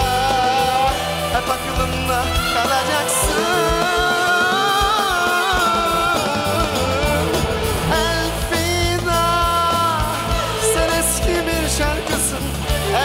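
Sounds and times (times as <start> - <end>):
live pop band playing: 0.0 - 13.0.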